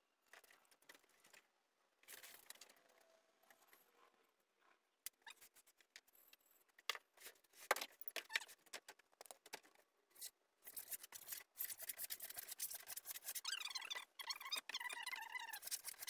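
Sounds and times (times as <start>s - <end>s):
scratching on foam board: 10.1s - 16.0s.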